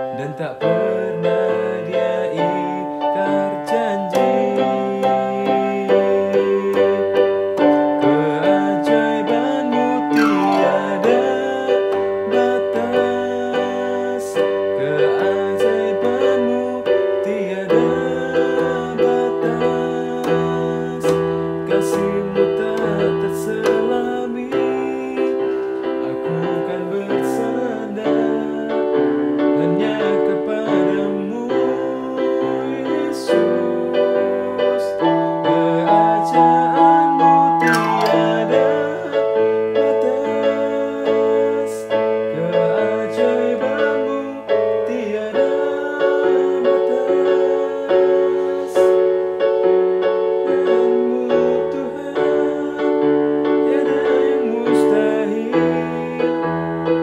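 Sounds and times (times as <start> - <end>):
keyboard playing piano chords: 0.0 - 57.0.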